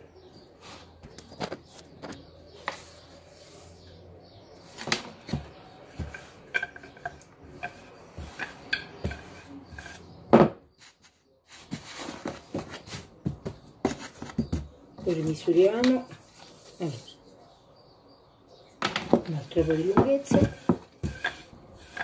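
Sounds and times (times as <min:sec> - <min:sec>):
hands tapping on wooden board: 0:05.3 - 0:10.6.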